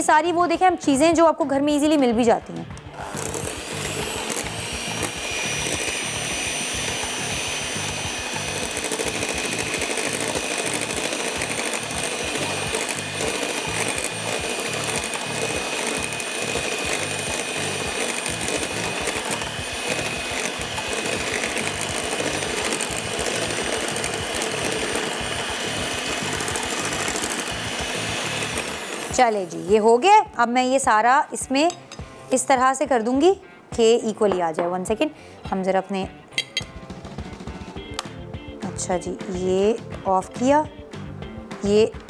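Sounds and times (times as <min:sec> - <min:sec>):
electric hand mixer whining: 0:02.6 - 0:30.0
beaters whisking liquid in glass bowl: 0:03.0 - 0:29.5.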